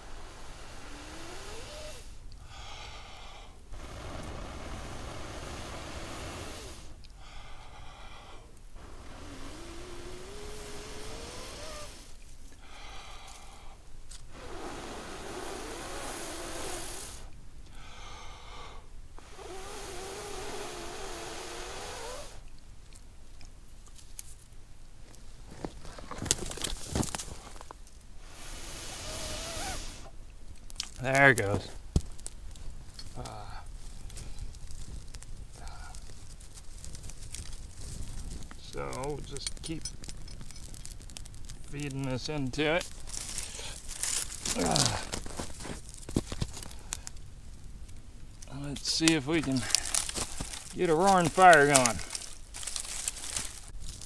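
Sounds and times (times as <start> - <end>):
breath drawn in: 0.0 - 22.5, 25.5 - 30.2, 32.9 - 34.9, 35.5 - 36.3, 43.1 - 47.1, 48.6 - 54.0
person blowing on ember: 0.0 - 22.6, 25.6 - 47.2, 48.4 - 54.0.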